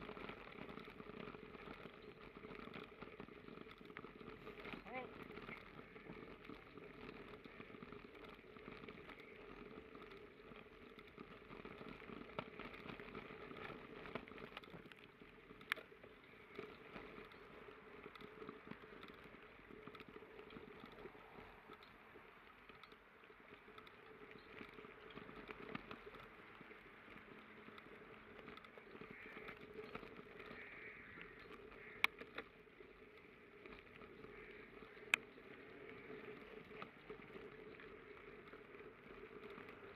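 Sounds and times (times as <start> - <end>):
bicycle tyres rolling on gravel: 0.0 - 39.9
bike clicks and knocks: 0.0 - 39.9.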